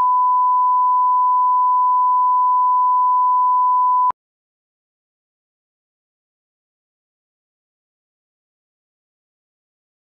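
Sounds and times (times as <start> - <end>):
steady test tone beep: 0.0 - 4.1.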